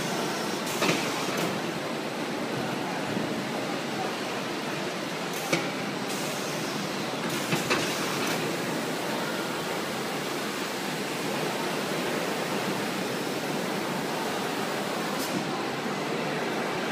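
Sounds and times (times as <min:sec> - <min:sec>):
palletizer machinery running: 0:00.0 - 0:01.9.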